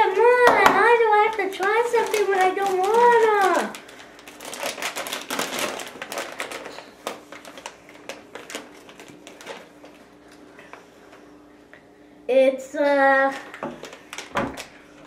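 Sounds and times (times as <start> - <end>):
plastic snack bag crinkling: 0.8 - 10.6, 13.2 - 15.0.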